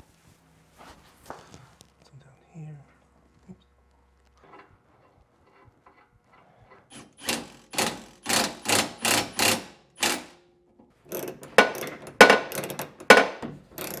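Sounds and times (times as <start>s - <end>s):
ratchet wrench clicking: 13.8s - 14.0s.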